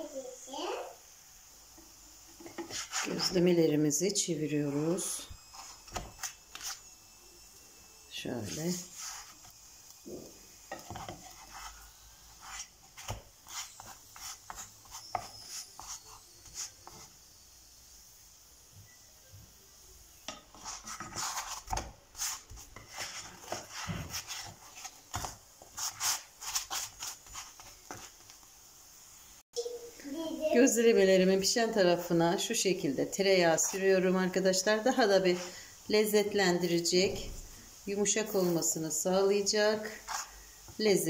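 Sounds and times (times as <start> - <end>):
spatula scraping frying pan: 1.8 - 3.6, 4.9 - 6.9, 8.4 - 17.2, 20.2 - 28.3, 33.1 - 36.3, 38.0 - 40.8.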